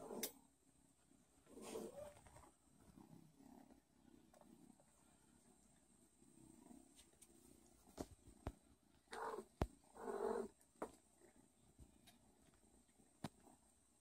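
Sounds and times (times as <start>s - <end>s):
cat purring: 0.0s - 14.0s.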